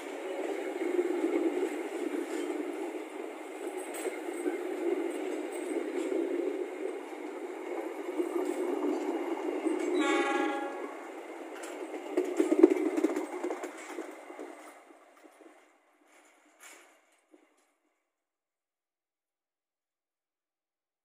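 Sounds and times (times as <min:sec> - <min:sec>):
wheels clattering over track: 0:00.0 - 0:17.8
train wheels rumbling on rails: 0:00.0 - 0:18.0
train horn: 0:09.9 - 0:11.1.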